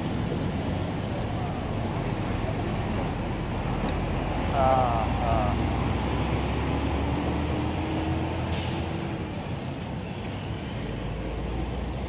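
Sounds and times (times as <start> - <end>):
diesel engine rumble: 0.0 - 12.0
hiss of released air: 8.5 - 9.0.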